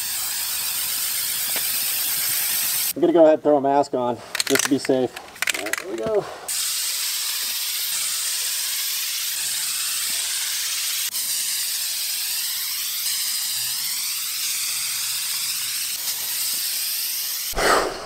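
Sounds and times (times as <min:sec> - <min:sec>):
aerosol can spraying: 0:00.0 - 0:03.0, 0:06.5 - 0:17.9.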